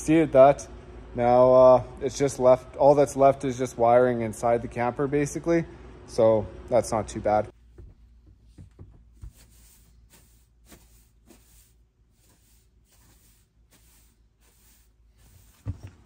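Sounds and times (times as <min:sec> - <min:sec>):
broom sweeping floor: 0:08.4 - 0:16.0.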